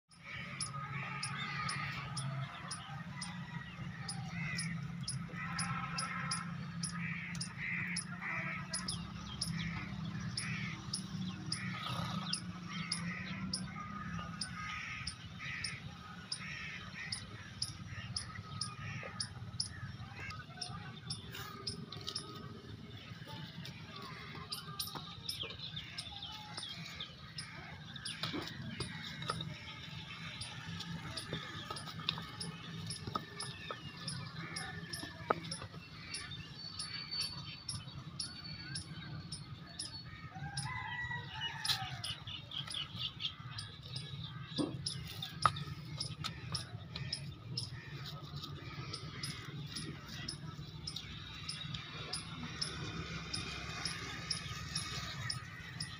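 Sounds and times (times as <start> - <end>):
crows cawing: 0.1 - 3.4, 4.0 - 9.8, 11.5 - 22.3, 43.3 - 50.5.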